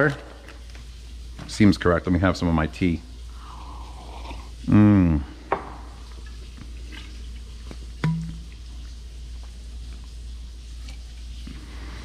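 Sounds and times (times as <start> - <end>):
man's short wordless vocal sound: 4.7 - 5.4
cap coming off plastic jug: 8.0 - 8.6.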